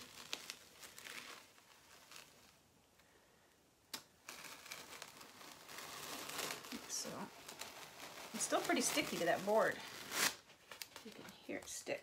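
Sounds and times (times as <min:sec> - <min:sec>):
adhesive sheet peeling: 0:03.9 - 0:11.2.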